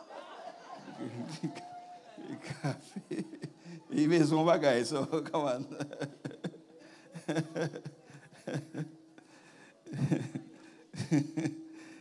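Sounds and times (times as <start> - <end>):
man chuckling softly: 5.8 - 9.0.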